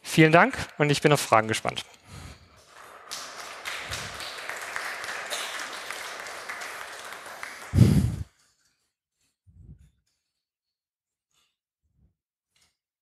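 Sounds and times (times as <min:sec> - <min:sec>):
audience applauding: 0:02.6 - 0:08.3.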